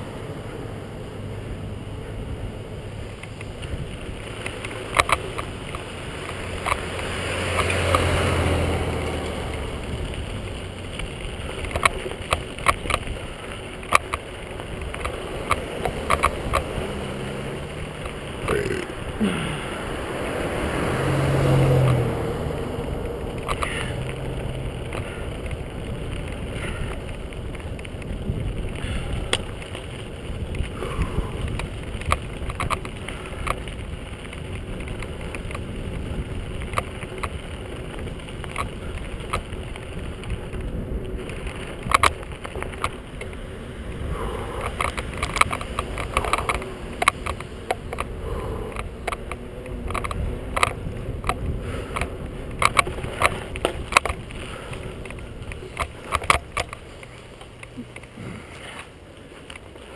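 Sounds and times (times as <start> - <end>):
bicycle tyre and wind rumble: 0.0 - 59.9
bike clicks and rattles over bumps: 0.0 - 59.9.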